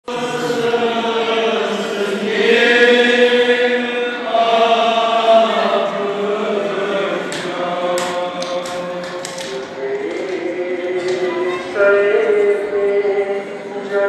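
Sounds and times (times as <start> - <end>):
men chanting lament: 0.0 - 14.0
sharp slaps: 7.3 - 10.4.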